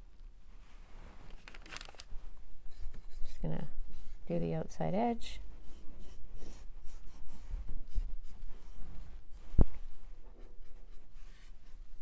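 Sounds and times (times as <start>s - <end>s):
paintbrush scratchy brushing: 2.7s - 4.4s, 5.4s - 12.0s.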